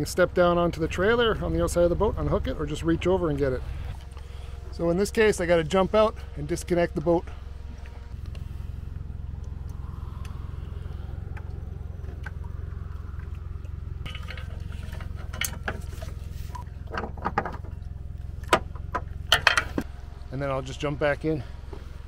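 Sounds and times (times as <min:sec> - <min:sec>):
steady low rumble: 0:00.0 - 0:22.0
metal hook clicking and rattling: 0:19.3 - 0:19.8.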